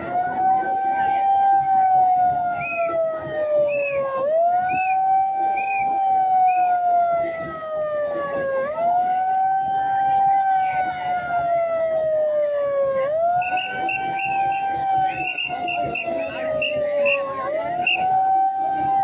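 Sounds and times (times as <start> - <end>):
siren wailing: 0.0 - 19.0.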